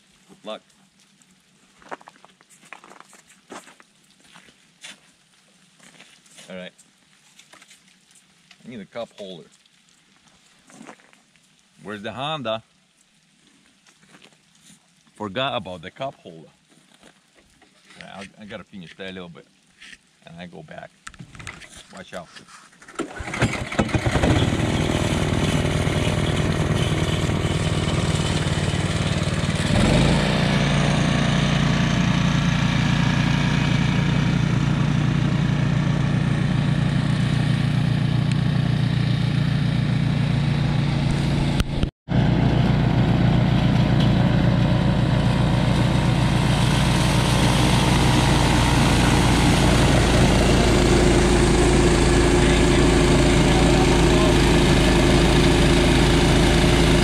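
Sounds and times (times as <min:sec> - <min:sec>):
snowblower engine running: 0:22.9 - 0:57.0.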